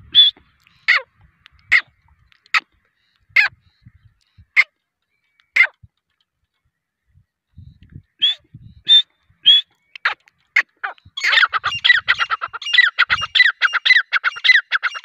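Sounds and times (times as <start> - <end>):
bird calling shrill notes: 0.1 - 1.0, 8.1 - 15.0.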